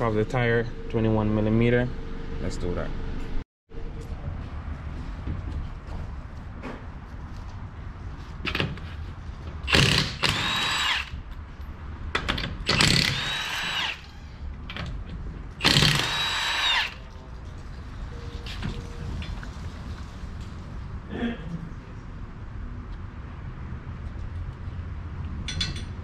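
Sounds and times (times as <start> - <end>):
impact wrench hammering and whining: 9.6 - 11.2, 12.1 - 14.2, 15.6 - 17.0.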